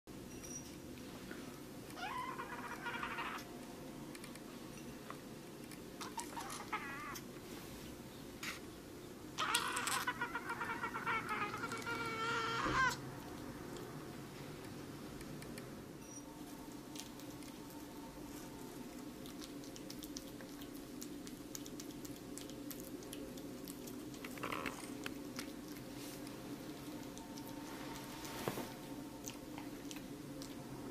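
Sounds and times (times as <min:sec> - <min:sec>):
steady low hum: 0:00.1 - 0:30.9
cat mewing: 0:01.9 - 0:03.5, 0:06.0 - 0:07.3, 0:09.4 - 0:13.0
cat chewing food: 0:16.4 - 0:30.9.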